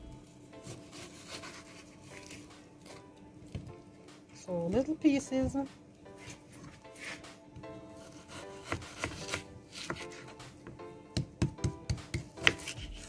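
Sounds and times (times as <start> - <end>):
background music: 0.0 - 13.0
knife chopping on wooden board: 8.0 - 10.5, 11.1 - 13.0.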